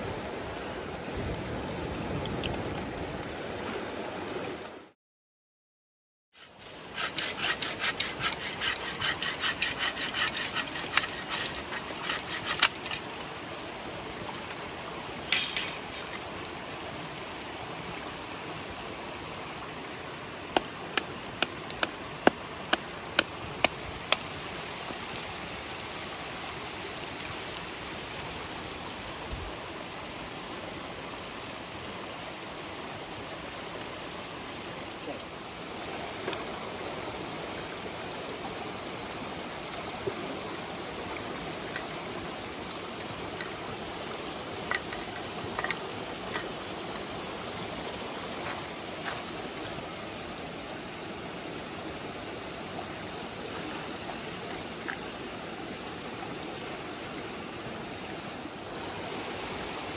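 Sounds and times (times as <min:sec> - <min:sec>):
stream running: 0:00.0 - 0:05.0, 0:06.3 - 0:59.9
saw cutting through branch: 0:06.4 - 0:13.1.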